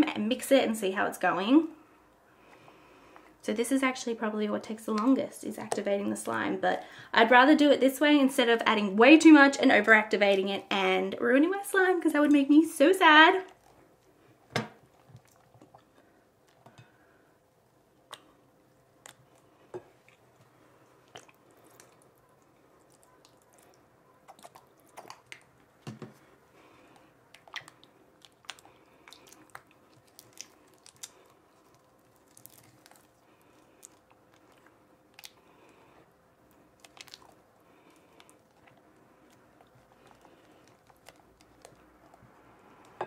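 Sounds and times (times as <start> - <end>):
sticky slime squelches: 18.0 - 43.0.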